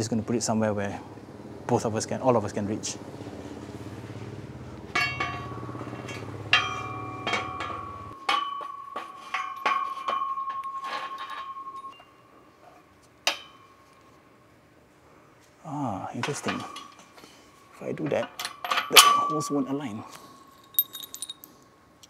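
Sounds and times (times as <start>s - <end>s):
low steady hum: 0.0s - 22.0s
metallic knocks of steel bar: 4.9s - 12.1s, 13.2s - 13.8s
ringing metal tone: 4.9s - 14.1s, 16.4s - 21.5s.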